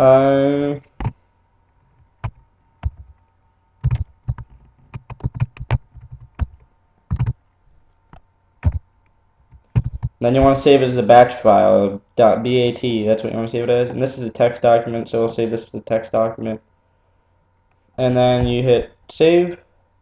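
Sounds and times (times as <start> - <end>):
keyboard typing: 2.2 - 3.2, 3.8 - 7.4, 8.6 - 8.9, 9.5 - 10.2.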